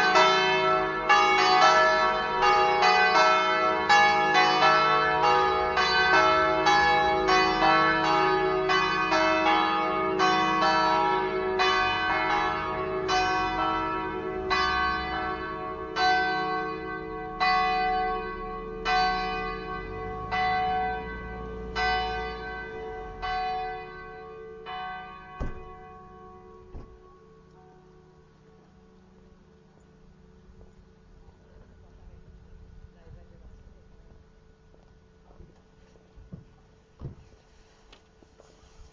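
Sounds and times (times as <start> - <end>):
church bells ringing: 0.0 - 31.8
sharp knock: 25.4 - 25.8.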